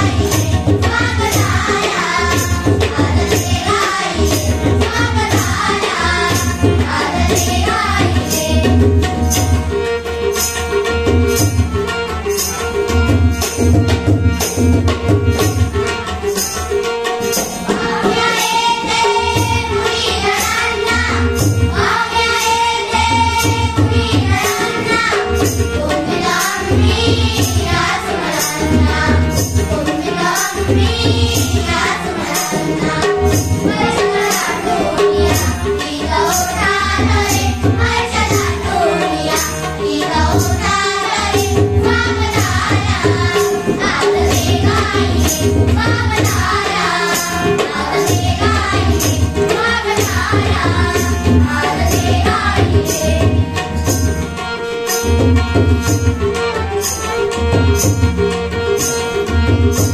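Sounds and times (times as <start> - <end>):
girls singing in unison: 0.0 - 9.5, 17.7 - 53.8
barrel drum rhythm: 0.0 - 59.9.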